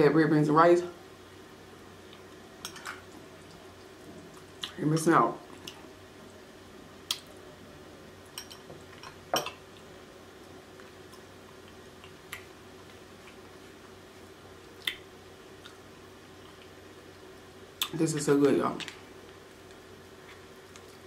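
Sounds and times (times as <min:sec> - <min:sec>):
faint steady hum: 0:00.0 - 0:21.0
person chewing food: 0:10.7 - 0:14.0, 0:14.6 - 0:16.8.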